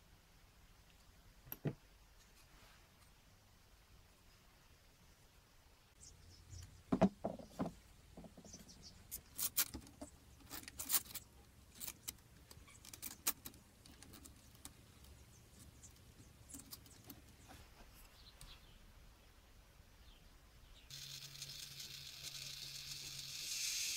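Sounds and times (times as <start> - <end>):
knocks: 6.9 - 7.8
wood and metal parts clicking: 6.9 - 17.4.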